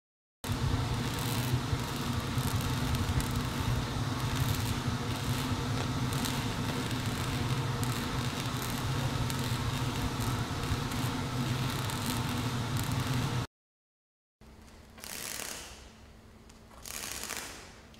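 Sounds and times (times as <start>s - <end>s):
low mechanical hum: 0.4s - 13.5s, 14.4s - 17.9s
faint crackles: 4.2s - 13.4s.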